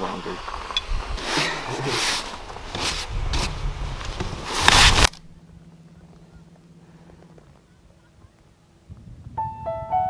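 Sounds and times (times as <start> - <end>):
snow brush scraping window: 0.2 - 5.1.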